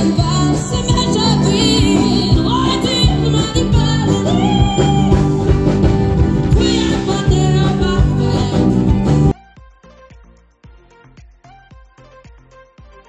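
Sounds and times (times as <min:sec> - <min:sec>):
person singing: 0:00.0 - 0:05.8, 0:06.4 - 0:13.0
guitars: 0:00.0 - 0:09.3
accordion: 0:00.0 - 0:09.4
bass: 0:00.0 - 0:13.0
steady drum beat: 0:00.0 - 0:13.0.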